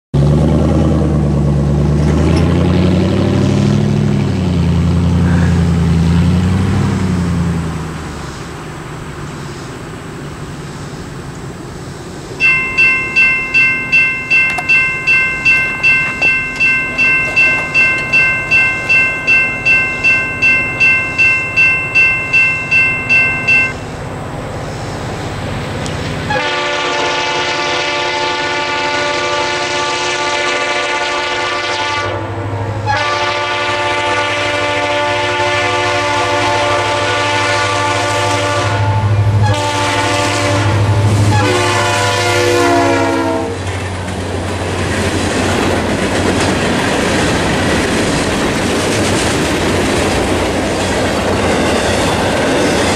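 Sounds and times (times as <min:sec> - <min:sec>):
pickup truck engine: 0:00.2 - 0:26.3
crossing bell dinging: 0:12.4 - 0:24.1, 0:50.0 - 0:52.9
locomotive horn chord: 0:26.3 - 0:43.7.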